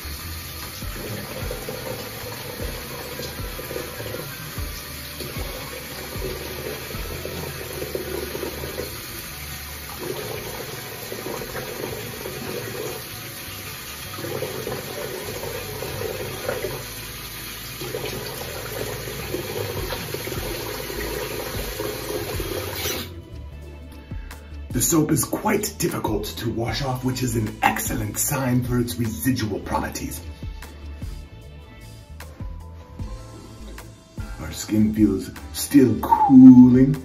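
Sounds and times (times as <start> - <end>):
sink tap running: 0.0 - 23.1.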